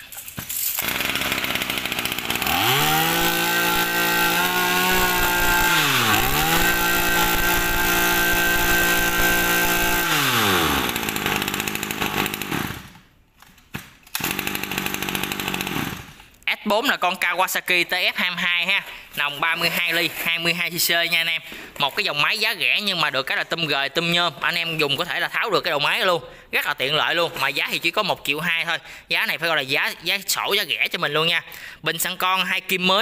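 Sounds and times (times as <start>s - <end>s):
brush cutter engine revving: 0.8s - 13.0s, 14.1s - 16.2s.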